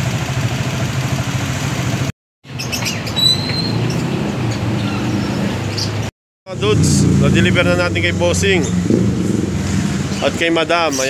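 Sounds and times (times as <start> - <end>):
vehicle engine idling: 0.0 - 2.1
birds chirping and whistling: 2.5 - 6.1.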